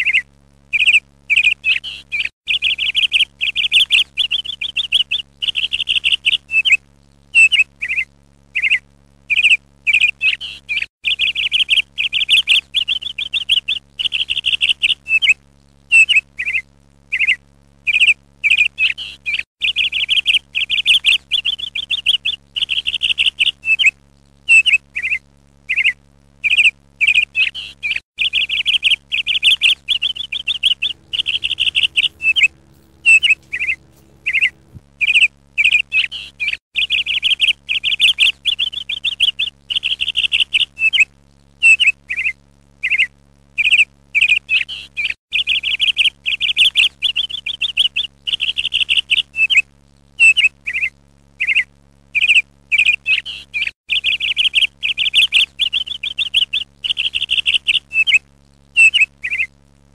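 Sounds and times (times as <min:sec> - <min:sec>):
bird chirping in high trills: 0:30.8 - 0:34.8
faint low hum: 0:30.8 - 0:34.8.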